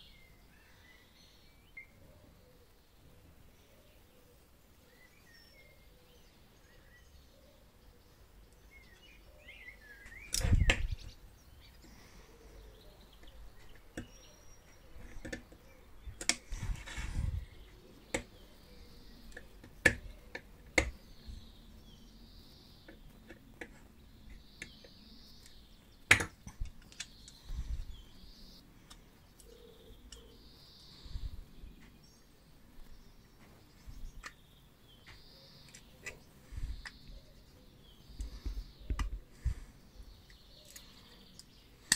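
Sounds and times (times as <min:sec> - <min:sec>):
clicks and knocks of metal parts: 0:10.3 - 0:11.1, 0:14.9 - 0:17.3, 0:22.9 - 0:27.5.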